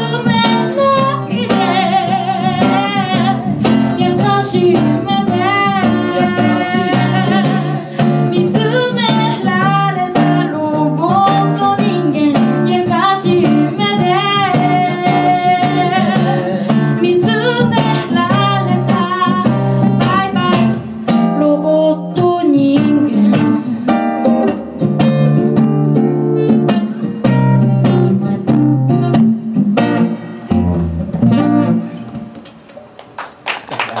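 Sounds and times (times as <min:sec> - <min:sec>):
woman singing: 0:00.0 - 0:24.5
acoustic guitar: 0:00.0 - 0:33.1.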